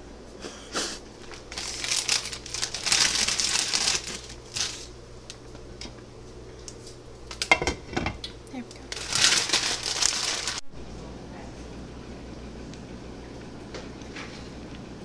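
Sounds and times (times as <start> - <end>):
plastic packet crinkling: 1.2 - 5.0, 8.8 - 10.6.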